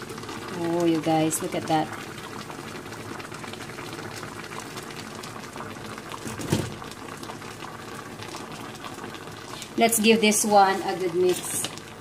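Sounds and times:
pot simmering with bubbling: 0:00.0 - 0:12.0.

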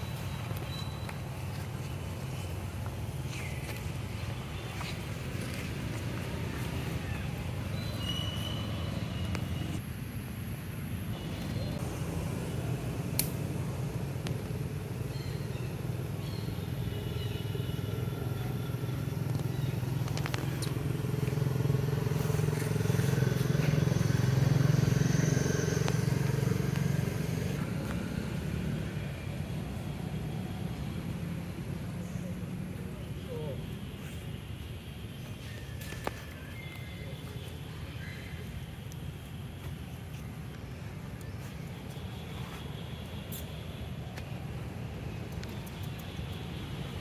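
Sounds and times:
low engine hum: 0:18.1 - 0:33.6.

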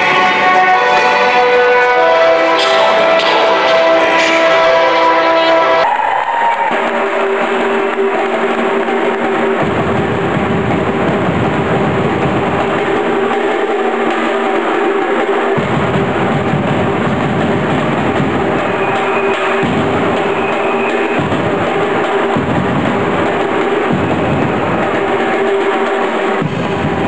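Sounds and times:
held musical chord: 0:00.0 - 0:05.8
live band music: 0:00.0 - 0:27.0.

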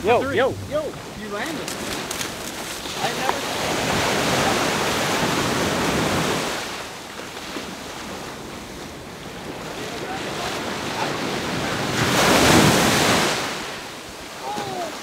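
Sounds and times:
wind buffeting microphone: 0:00.0 - 0:06.7
ocean surf breaking: 0:00.0 - 0:15.0.

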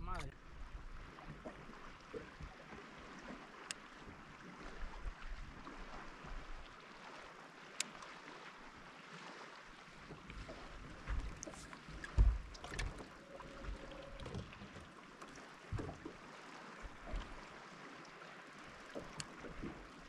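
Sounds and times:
water lapping against hull: 0:00.0 - 0:20.0
dull knocks on boat: 0:12.0 - 0:13.0, 0:15.7 - 0:16.1.

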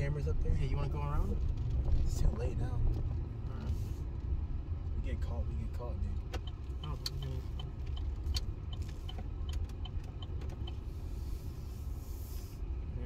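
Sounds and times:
engine and road rumble: 0:00.0 - 0:13.0
turn signal ticking: 0:00.7 - 0:11.9.

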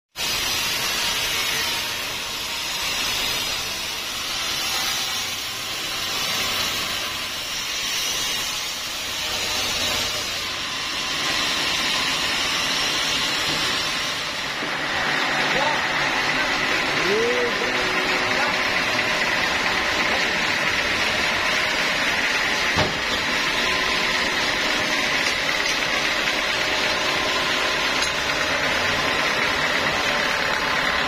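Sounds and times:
band saw cutting log: 0:00.2 - 0:31.0.

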